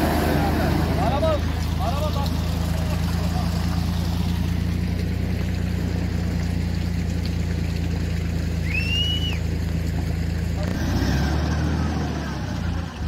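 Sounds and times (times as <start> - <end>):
car engine idling: 0.0 - 13.0
short whistle: 8.6 - 9.4.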